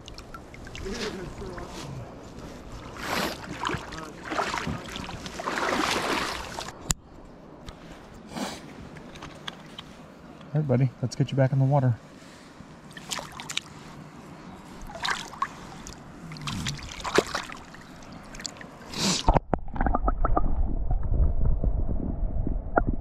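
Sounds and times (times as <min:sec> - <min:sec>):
river water splashing and trickling: 0:00.0 - 0:07.0, 0:12.1 - 0:19.9
muffled underwater rumble: 0:19.3 - 0:23.0.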